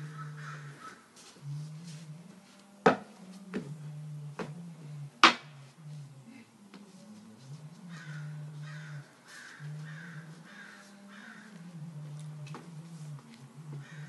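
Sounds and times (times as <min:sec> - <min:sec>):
low steady hum: 0:00.0 - 0:14.0
crow cawing: 0:00.1 - 0:01.0, 0:07.9 - 0:11.6, 0:13.8 - 0:14.0.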